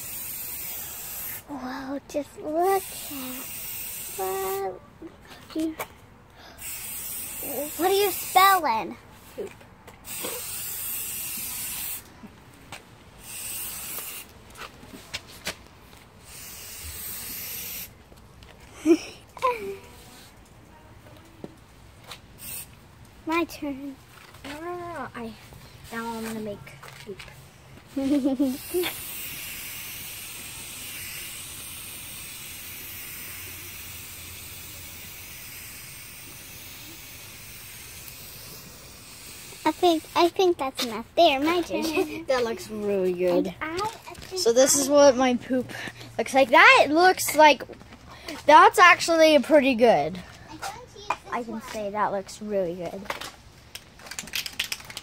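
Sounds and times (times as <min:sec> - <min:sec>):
spray paint can hissing: 0:00.0 - 0:01.5, 0:02.6 - 0:04.7, 0:06.6 - 0:08.6, 0:10.0 - 0:12.1, 0:13.2 - 0:14.4, 0:16.2 - 0:17.9, 0:22.1 - 0:22.8, 0:28.0 - 0:40.4.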